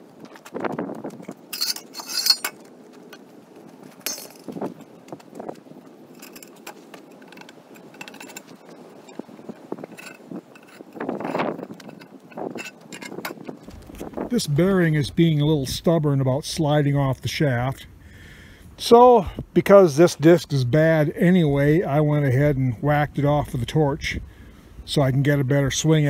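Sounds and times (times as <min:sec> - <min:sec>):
steel parts clinking and scraping: 0:00.5 - 0:03.2, 0:03.9 - 0:14.1
sharp metallic clinks: 0:01.5 - 0:02.6, 0:04.0 - 0:04.5.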